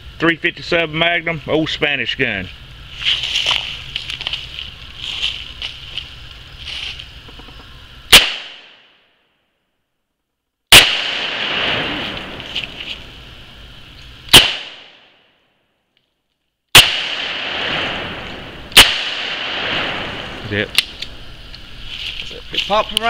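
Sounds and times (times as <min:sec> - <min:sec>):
revolver gunshots: 0:08.1 - 0:08.9, 0:10.7 - 0:12.8, 0:14.3 - 0:15.2, 0:16.7 - 0:21.2.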